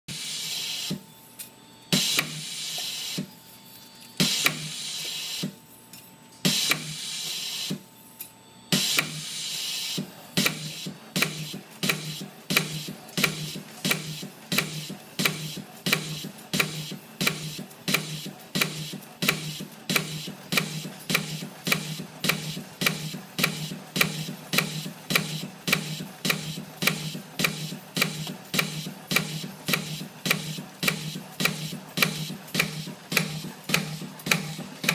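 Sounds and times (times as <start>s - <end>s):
machine hissing strokes: 0.1s - 1.0s, 1.9s - 3.4s, 4.2s - 5.6s, 6.4s - 7.8s, 8.7s - 34.9s
machine sharp clicks: 9.9s - 34.9s.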